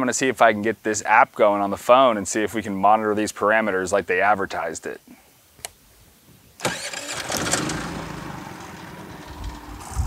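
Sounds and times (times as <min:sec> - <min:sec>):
generator engine running: 0:06.6 - 0:10.0.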